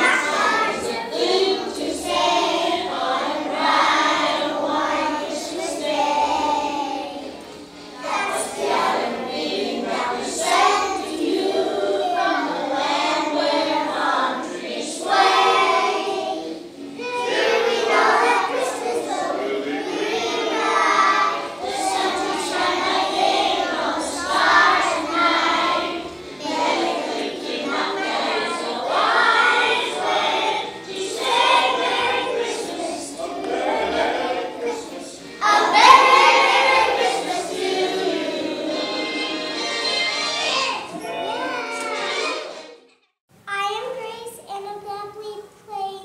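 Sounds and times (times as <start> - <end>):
children singing: 0.0 - 42.8.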